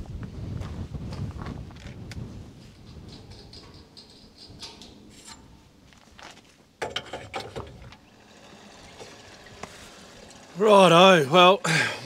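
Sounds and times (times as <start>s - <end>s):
fuel flowing through hose: 7.9s - 12.0s.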